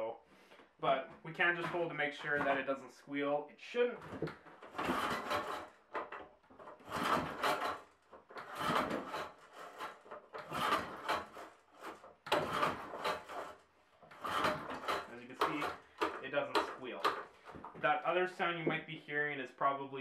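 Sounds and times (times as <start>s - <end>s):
lawn mower pull-starter whirring: 4.6s - 17.4s.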